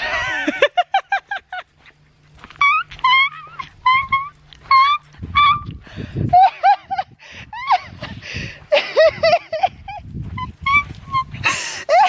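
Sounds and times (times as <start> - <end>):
small dog whining and yipping: 2.6 - 5.8.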